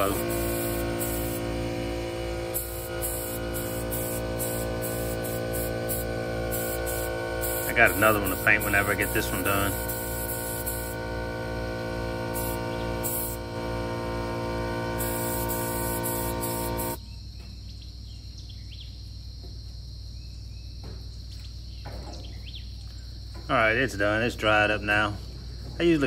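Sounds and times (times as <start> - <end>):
crickets trilling: 0.0 - 14.1, 15.0 - 26.0
paint sprayer humming: 0.0 - 17.0.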